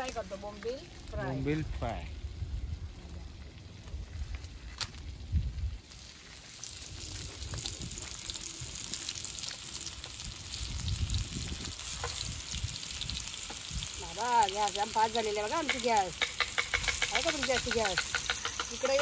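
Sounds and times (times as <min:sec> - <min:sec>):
fish sizzling in oil: 0:04.0 - 0:19.0.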